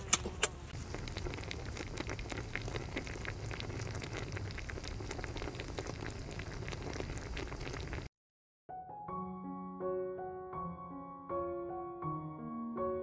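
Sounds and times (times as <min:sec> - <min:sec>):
sauce bubbling and sizzling: 0:00.0 - 0:08.1.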